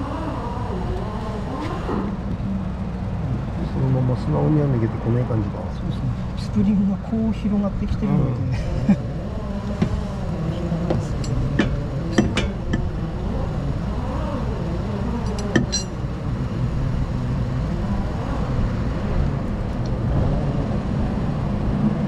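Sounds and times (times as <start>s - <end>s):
low workshop hum: 7.9s - 17.6s
metallic clicks and clinks: 15.3s - 15.9s.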